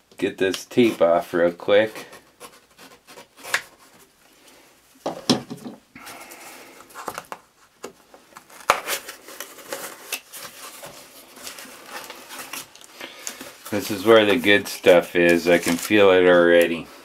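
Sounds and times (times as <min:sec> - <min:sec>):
packing tape peeling off cardboard: 0:02.1 - 0:04.0, 0:08.3 - 0:14.6
cardboard flaps rustling: 0:06.8 - 0:16.8.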